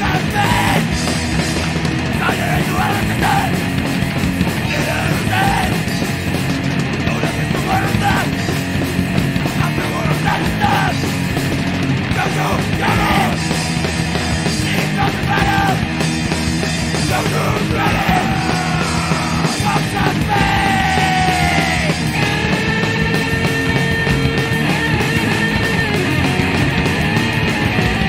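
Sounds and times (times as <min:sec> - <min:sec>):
shouted vocals: 0:00.0 - 0:01.0, 0:02.2 - 0:03.7, 0:04.6 - 0:06.1, 0:07.1 - 0:08.6, 0:09.6 - 0:11.1, 0:12.0 - 0:13.6, 0:14.4 - 0:15.9, 0:17.0 - 0:22.6
hardcore punk band playing: 0:00.0 - 0:28.0.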